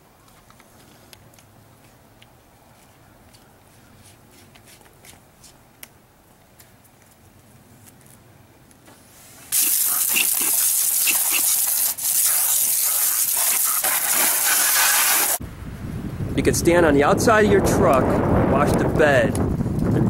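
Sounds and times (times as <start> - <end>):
water spray hissing on car: 9.5 - 15.4.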